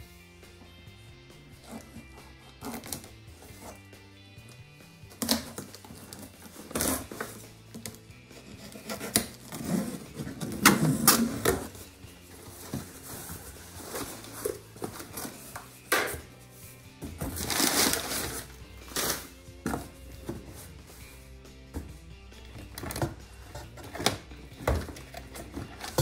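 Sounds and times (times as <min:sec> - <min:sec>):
cardboard scraping: 0:01.5 - 0:03.9, 0:05.2 - 0:15.9, 0:16.6 - 0:21.3
tape ripping: 0:05.2 - 0:07.9, 0:08.5 - 0:11.7, 0:17.3 - 0:19.3
box cutter slitting tape: 0:05.2 - 0:11.7
packing paper rustling: 0:12.4 - 0:15.7, 0:17.3 - 0:19.3.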